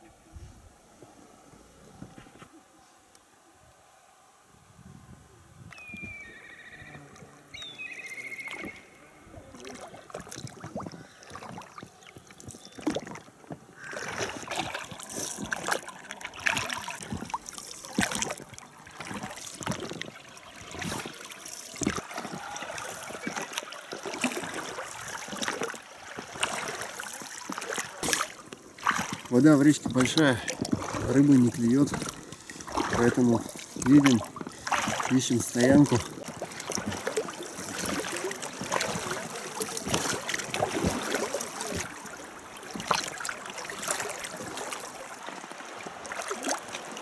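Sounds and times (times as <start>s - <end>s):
oars pulling through water: 5.0s - 47.0s
water splashes and drips: 9.5s - 47.0s.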